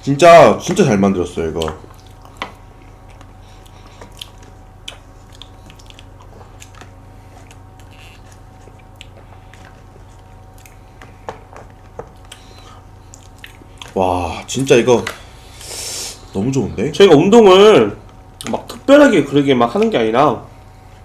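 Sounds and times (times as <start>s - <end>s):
low electrical hum: 0.0s - 21.0s
soft chewing: 1.5s - 14.8s.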